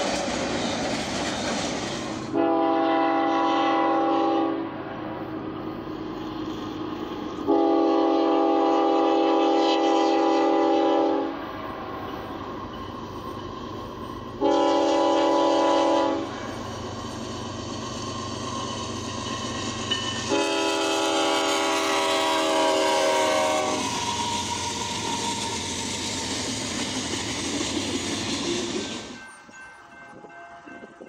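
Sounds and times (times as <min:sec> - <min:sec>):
train rumbling past: 0:00.0 - 0:31.0
locomotive air horn: 0:02.3 - 0:04.7, 0:07.4 - 0:11.4, 0:14.4 - 0:16.5, 0:20.2 - 0:25.6.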